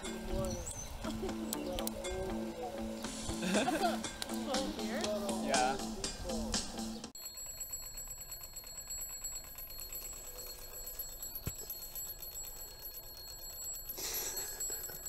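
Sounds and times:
alarm clock bell ringing: 7.2 - 15.0.

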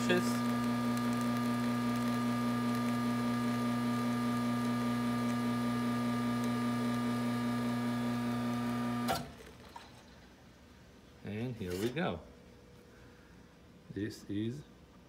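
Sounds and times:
espresso machine pump humming: 0.0 - 9.3.

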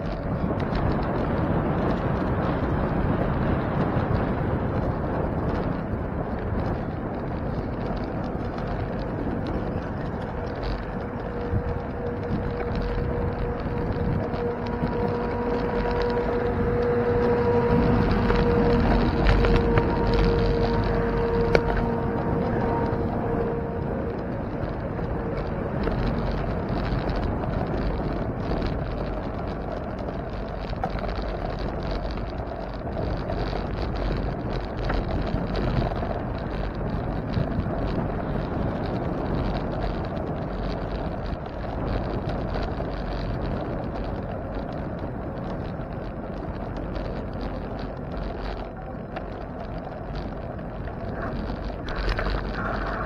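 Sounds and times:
bicycle tyre and road noise: 0.0 - 53.0
wind on microphone: 0.0 - 53.0.

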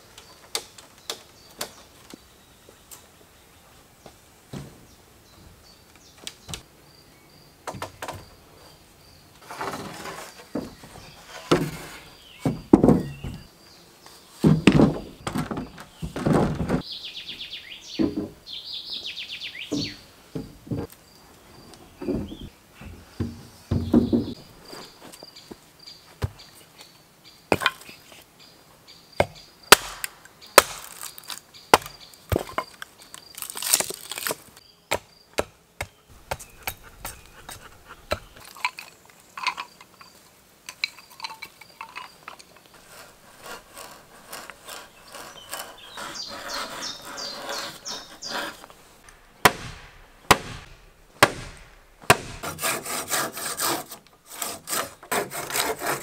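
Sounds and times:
scraping strokes on wood: 9.4 - 12.6, 36.1 - 38.8, 41.0 - 56.0.

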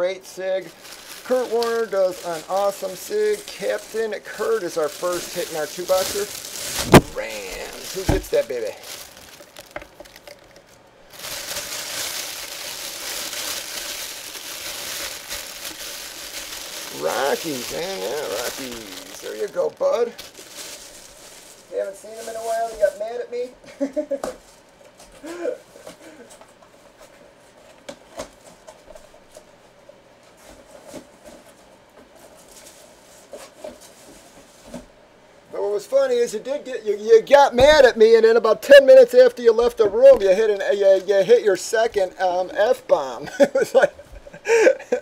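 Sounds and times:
plastic bag crinkling: 0.4 - 23.2, 37.3 - 38.0, 39.0 - 42.9.

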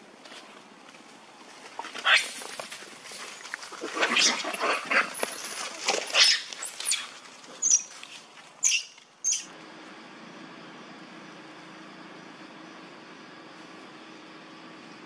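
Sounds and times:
faint steady hum: 0.0 - 15.0
monkeys shrill calls and squeals: 2.0 - 7.9, 8.6 - 9.5.

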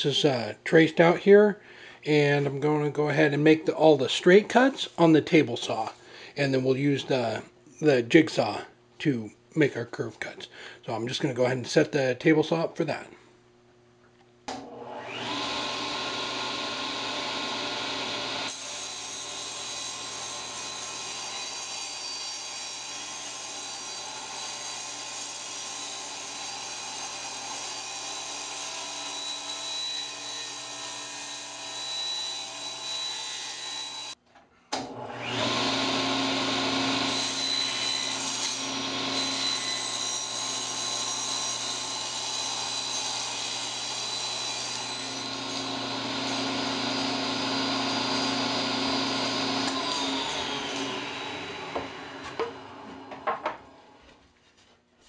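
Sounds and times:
table saw cutting plywood: 14.5 - 34.2, 34.8 - 53.9.

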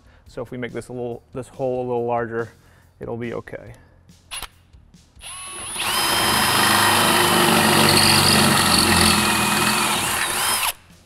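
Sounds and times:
drill bit cutting metal: 5.2 - 10.8
power drill motor whine: 5.2 - 10.8.

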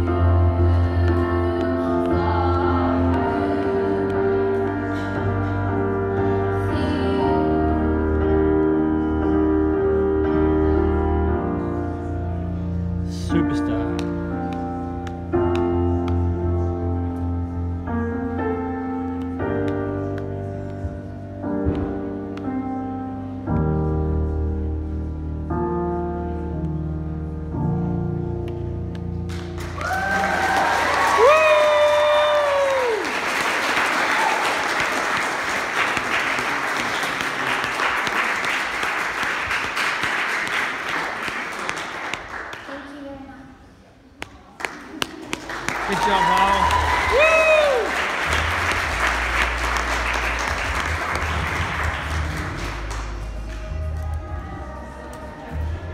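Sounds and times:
slow piano chords: 0.0 - 55.9
applause and cheering: 29.3 - 42.8, 44.6 - 55.9.

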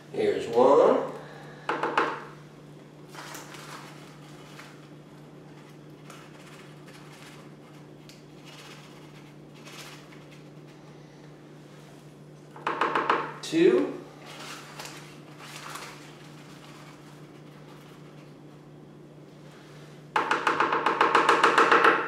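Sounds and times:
air pump humming: 0.0 - 22.0
spoon scooping powder rustles: 3.0 - 10.9, 14.0 - 18.8.

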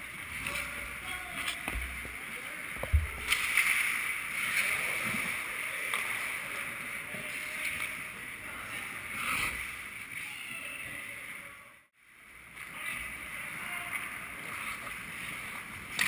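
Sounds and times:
skates scraping ice: 12.9 - 16.0.

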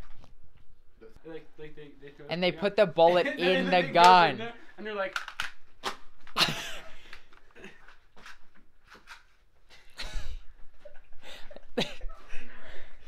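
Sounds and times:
person's wordless vocal sounds: 3.2 - 4.5.

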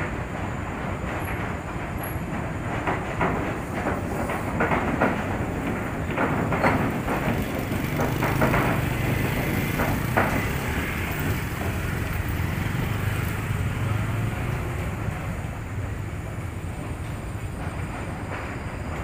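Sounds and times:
bridge deck boards clacking: 0.1 - 19.0
engine hum: 6.1 - 17.7.

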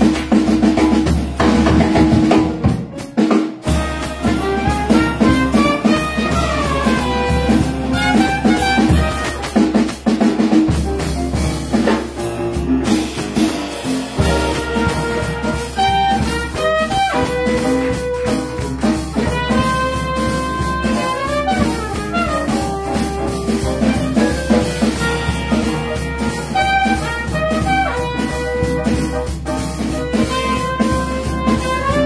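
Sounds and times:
drum kit with sticks: 0.0 - 32.0
piano: 0.0 - 32.0
trumpet: 0.0 - 32.0
clarinet: 3.6 - 9.6, 14.2 - 32.0.

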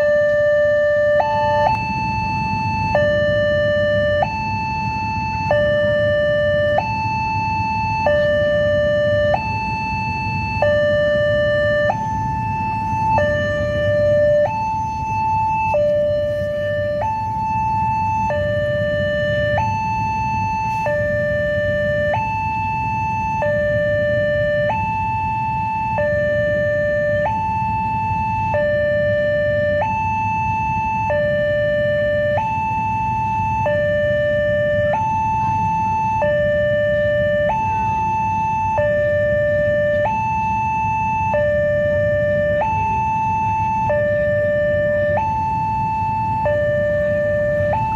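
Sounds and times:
steady low rumble: 0.0 - 22.1
level-crossing alarm two-tone: 0.0 - 47.9.

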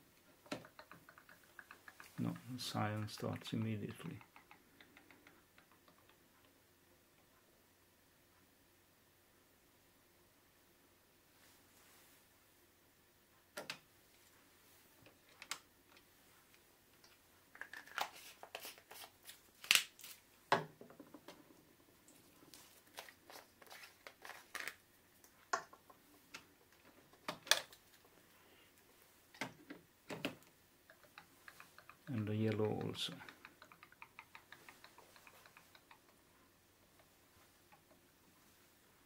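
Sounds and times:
plastic bottles clicking and tapping: 0.4 - 2.5, 17.5 - 19.0.

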